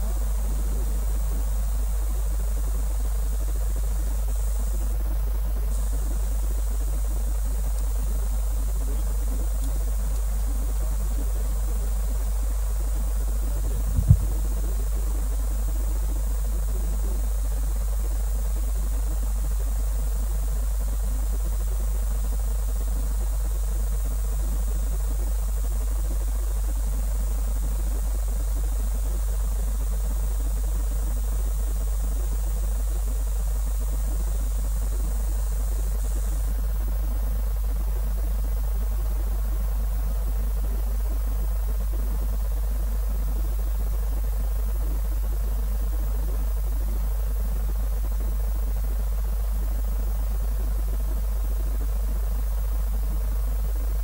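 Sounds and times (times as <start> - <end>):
faint high whine: 0.0 - 19.3
faint hiss: 0.0 - 54.0
loud low-pitched hum: 13.1 - 15.2.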